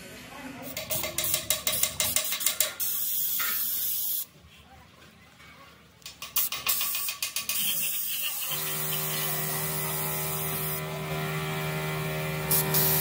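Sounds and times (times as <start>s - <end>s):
short hissing spurts: 0.7s - 4.3s, 6.4s - 9.5s, 12.5s - 13.0s
workshop machine humming: 8.4s - 13.0s.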